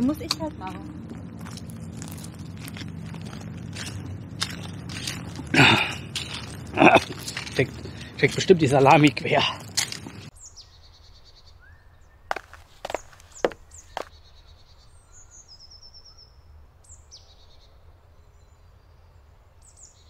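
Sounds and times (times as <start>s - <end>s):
footsteps: 0.0s - 10.3s, 12.3s - 14.1s
forest background: 0.0s - 20.0s
songbirds chirping: 0.0s - 20.0s.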